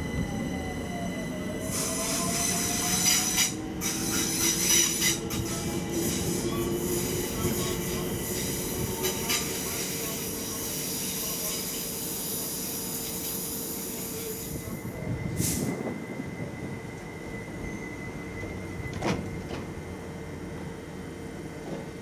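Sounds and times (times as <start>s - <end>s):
train wheel squeal: 0.0s - 19.6s
electric train humming: 0.0s - 21.8s.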